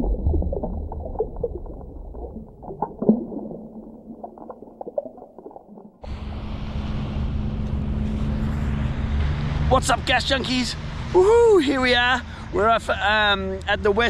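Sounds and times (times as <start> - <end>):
underwater bubbling and gurgling: 0.0 - 6.4
low hum: 0.0 - 11.6
outdoor rush of noise: 6.0 - 14.0.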